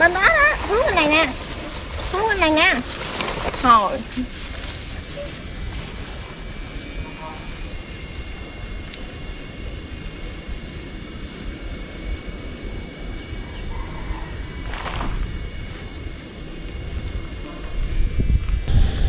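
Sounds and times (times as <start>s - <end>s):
low rumble: 0.0s - 12.2s
high-pitched insect chorus: 0.0s - 19.0s.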